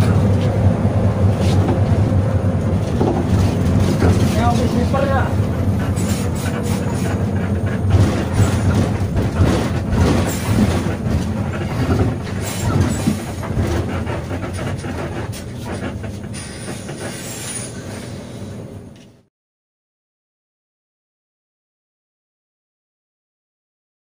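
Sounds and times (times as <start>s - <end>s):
bus engine and road rumble: 0.0s - 19.3s
rattling knocks: 2.8s - 16.3s.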